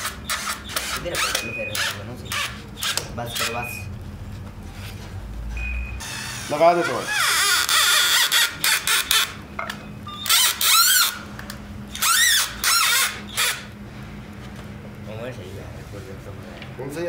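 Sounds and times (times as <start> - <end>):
cordless drill motor whine: 5.5 - 9.3, 10.1 - 11.2, 11.9 - 13.7.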